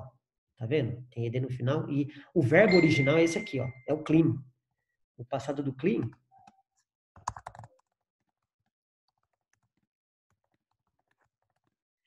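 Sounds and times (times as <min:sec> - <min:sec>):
keyboard typing clicks: 0:07.2 - 0:07.9.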